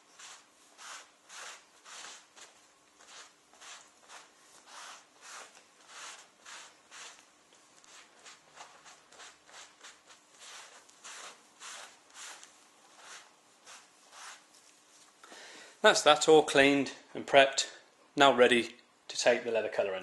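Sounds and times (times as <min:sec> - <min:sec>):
cloth wiping leather: 0:00.0 - 0:15.1.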